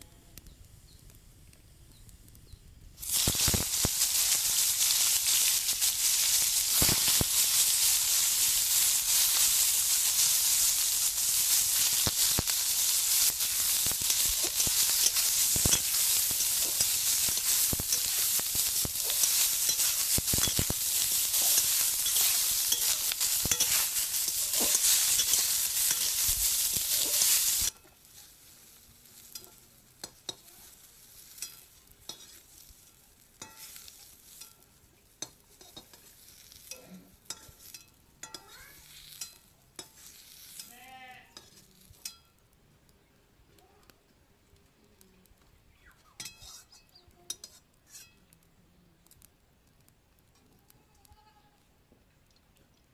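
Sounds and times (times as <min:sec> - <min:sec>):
eggs sizzling in hot oil: 0:00.0 - 0:45.2, 0:46.2 - 0:51.7
metal ladle scraping pan: 0:03.0 - 0:28.4, 0:31.2 - 0:34.6, 0:46.2 - 0:46.8, 0:47.4 - 0:48.2.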